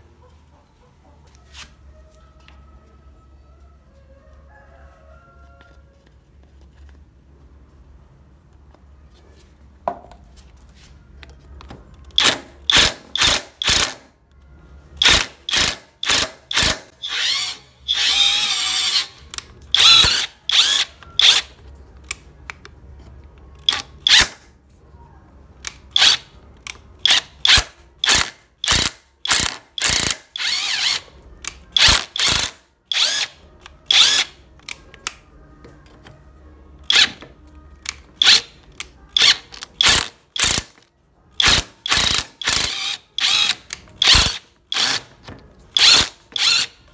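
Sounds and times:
power drill drilling into steel: 15.0 - 19.2, 19.8 - 21.4, 28.0 - 31.0, 41.4 - 45.0, 45.8 - 46.7.

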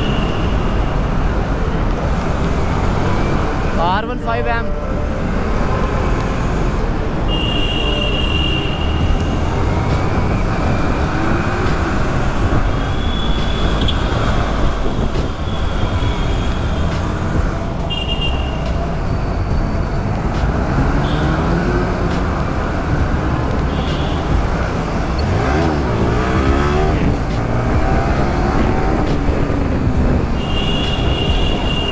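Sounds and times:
road noise: 0.0 - 31.9
traffic: 0.0 - 31.9.

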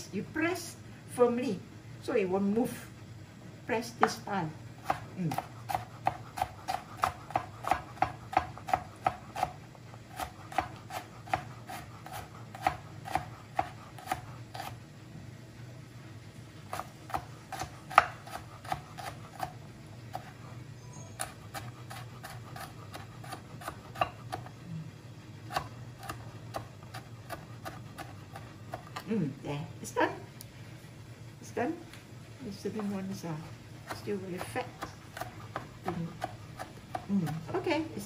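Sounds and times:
steady low hum: 0.0 - 38.0
knife chopping on plastic board: 4.9 - 14.7, 16.7 - 19.5.

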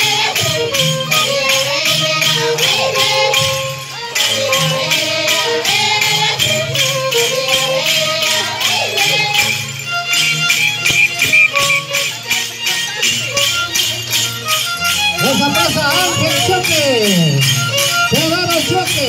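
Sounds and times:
women singing: 0.0 - 9.7
bells jingling: 0.0 - 19.0
violin: 0.0 - 19.0.

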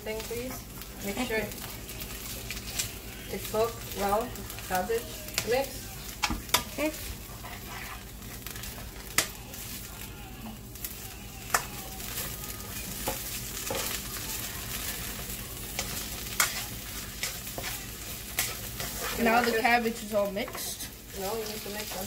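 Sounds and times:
cabbage sizzling in a pan: 0.0 - 22.0
spatula scraping: 1.1 - 10.0, 11.5 - 22.0
spatula clicking against pan: 11.5 - 11.7.

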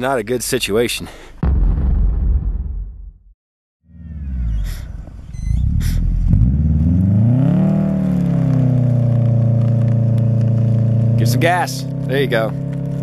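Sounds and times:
low rumbling: 1.4 - 12.0
car engine revving: 3.9 - 13.0.

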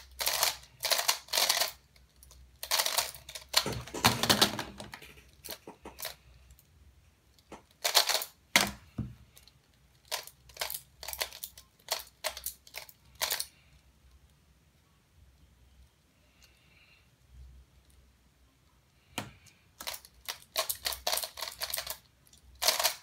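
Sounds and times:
plastic puzzle pieces clicking: 0.0 - 6.2, 7.4 - 8.8, 9.4 - 13.5, 19.2 - 23.0.

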